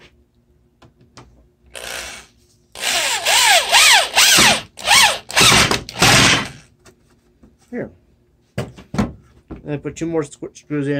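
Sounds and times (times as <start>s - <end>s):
electric drill driving a screw: 1.7s - 6.6s.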